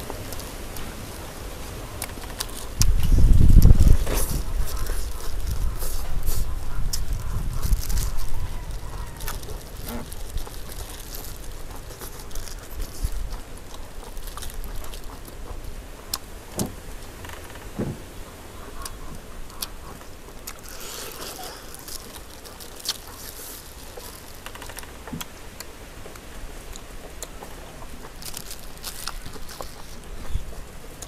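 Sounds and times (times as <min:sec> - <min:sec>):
plastic gloves rustling: 0:00.0 - 0:15.7, 0:20.1 - 0:24.8, 0:27.9 - 0:31.0
chewing: 0:01.7 - 0:16.4, 0:18.6 - 0:31.0
chicken being torn apart: 0:02.2 - 0:15.3.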